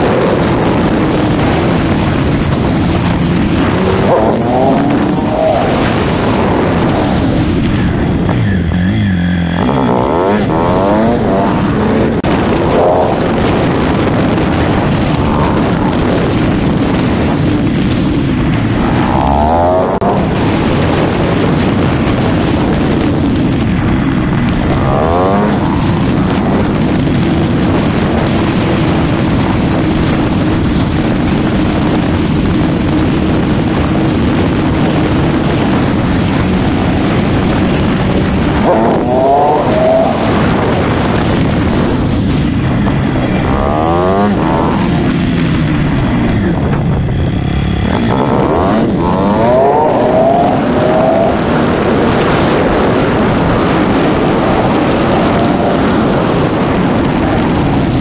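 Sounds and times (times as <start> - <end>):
motorcycle engine accelerating: 0.0 - 58.0
wind rush on microphone: 0.0 - 58.0.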